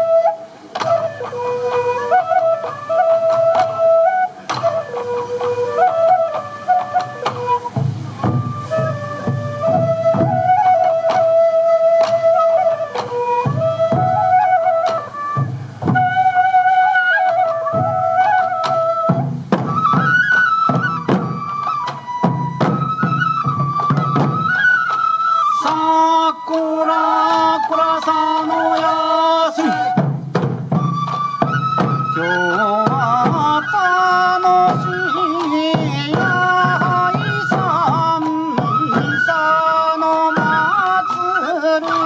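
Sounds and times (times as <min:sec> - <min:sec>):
bamboo flute folk melody: 0:00.0 - 0:42.0
drum beats: 0:00.0 - 0:42.0
person singing: 0:25.6 - 0:30.0, 0:32.2 - 0:42.0.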